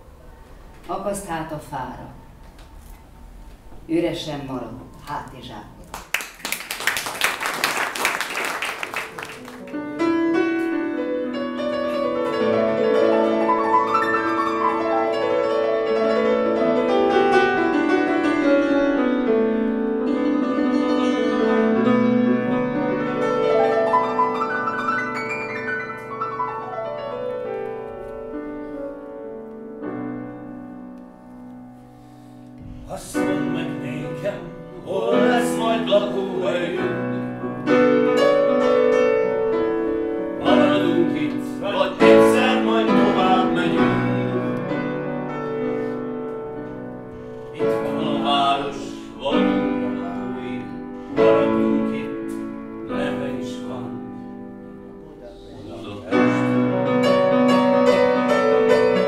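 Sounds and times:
applause: 5.8 - 9.8
grand piano playing: 7.6 - 59.0
man singing: 32.8 - 37.4, 40.4 - 44.8, 47.6 - 54.0.

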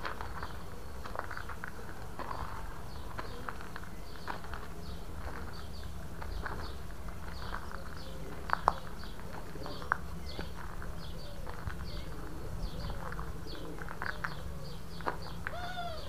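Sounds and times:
small birds chirping: 0.1 - 16.0
pigeons cooing: 11.0 - 16.0.

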